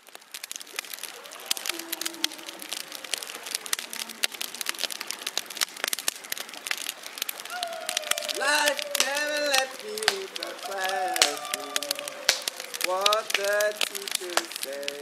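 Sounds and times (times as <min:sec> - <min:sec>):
dense crackling clicks: 0:00.0 - 0:15.0
steady hiss: 0:00.0 - 0:15.0
faint tones: 0:01.0 - 0:05.3, 0:07.4 - 0:14.7.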